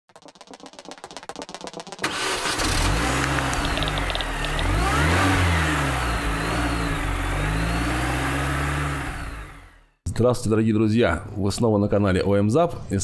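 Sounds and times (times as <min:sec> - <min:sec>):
car engine revving: 0:02.0 - 0:10.0.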